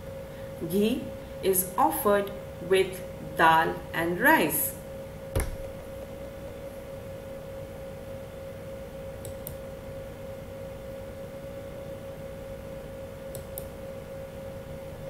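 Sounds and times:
steady hum: 0.0s - 15.0s
computer mouse clicks: 9.2s - 9.6s, 13.3s - 13.7s.

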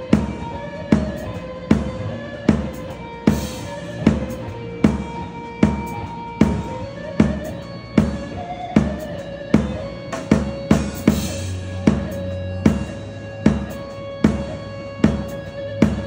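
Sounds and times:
drum kit slow heavy beat: 0.0s - 16.0s.

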